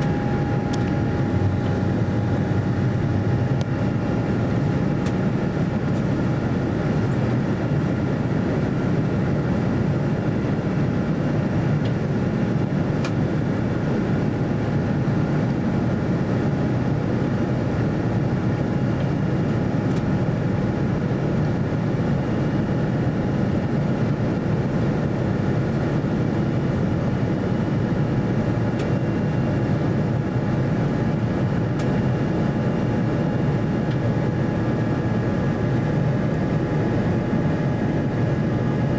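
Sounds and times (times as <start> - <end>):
air rushing along fuselage: 0.0 - 17.4
jet engine drone: 0.0 - 38.9.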